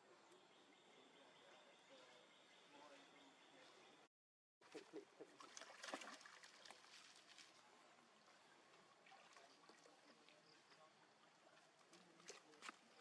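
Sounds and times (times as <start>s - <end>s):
small splashes and crackles: 4.6s - 13.0s
water splashing and trickling: 4.6s - 13.0s.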